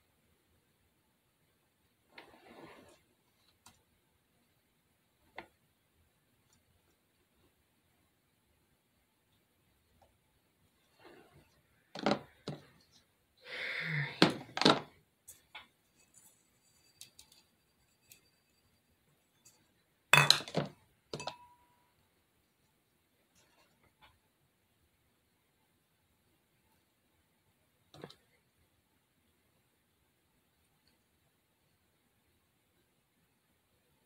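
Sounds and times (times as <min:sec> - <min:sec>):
rustling scrape: 0:02.1 - 0:03.1, 0:15.9 - 0:18.3
glass jar clinking and knocking: 0:20.2 - 0:21.7
glassy ring: 0:21.2 - 0:22.0.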